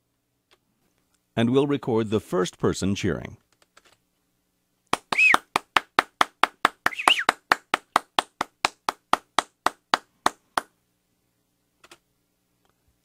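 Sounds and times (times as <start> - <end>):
person clapping: 4.9 - 10.7.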